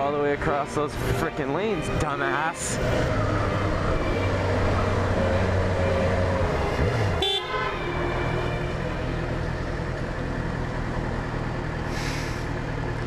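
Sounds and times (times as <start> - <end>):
short horn toot: 7.2 - 8.0.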